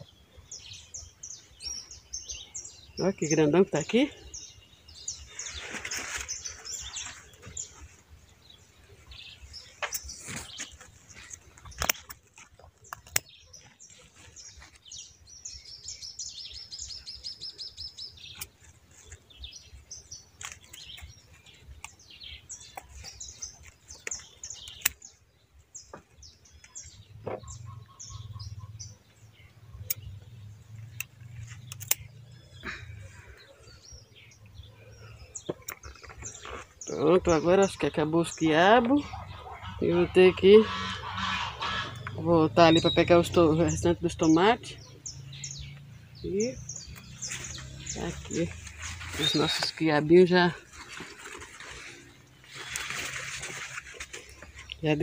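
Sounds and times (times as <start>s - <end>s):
small birds chirping: 0.0s - 55.0s
sharp clicks: 30.9s - 32.1s.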